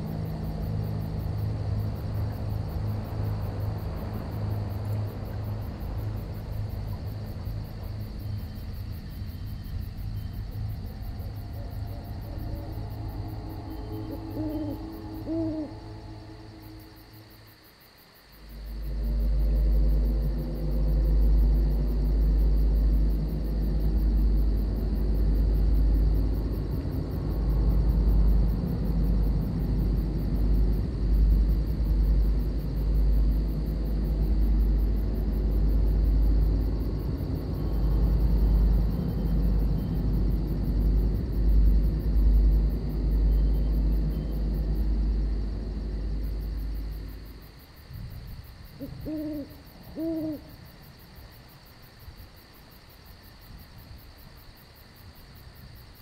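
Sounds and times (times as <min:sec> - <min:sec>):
crickets chirping: 0:00.0 - 0:56.0
owl hooting: 0:11.4 - 0:17.0, 0:48.8 - 0:50.6
rolling thunder rumble: 0:18.6 - 0:49.9.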